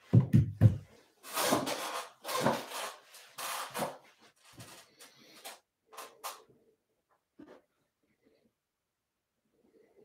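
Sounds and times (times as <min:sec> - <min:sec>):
rubbing or scraping: 0:01.0 - 0:06.5.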